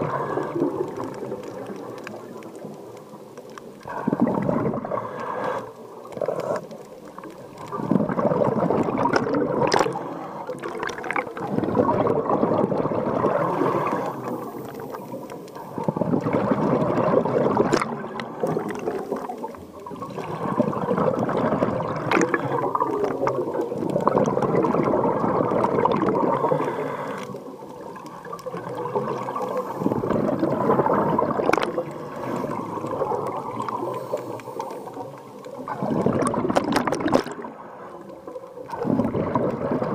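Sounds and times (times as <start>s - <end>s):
diver bubbling exhalation: 3.9s - 5.0s, 7.7s - 14.6s, 15.8s - 19.2s, 20.0s - 26.8s, 28.5s - 34.1s, 35.7s - 37.5s, 38.7s - 39.9s.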